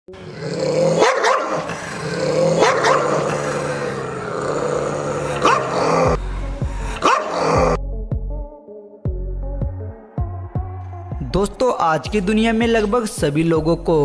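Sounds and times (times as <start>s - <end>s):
background music: 0.1s - 14.0s
dog barking: 0.9s - 3.6s, 5.2s - 6.1s, 7.0s - 7.7s.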